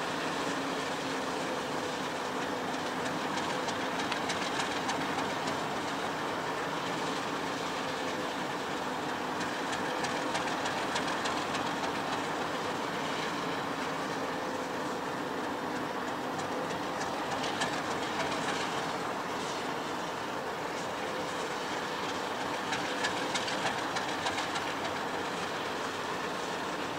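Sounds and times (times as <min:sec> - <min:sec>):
diesel locomotive engine drone: 0:00.0 - 0:26.9
rail clicking: 0:15.4 - 0:20.0, 0:21.2 - 0:26.8.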